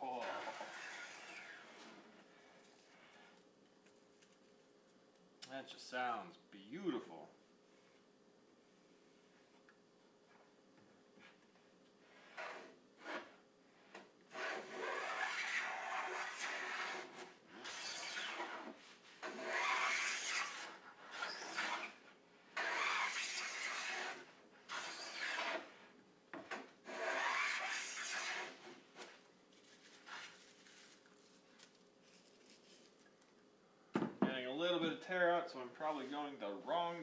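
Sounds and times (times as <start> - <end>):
hand plane shearing wood: 0.2 - 2.0, 14.3 - 22.0, 22.6 - 25.7, 26.9 - 29.1.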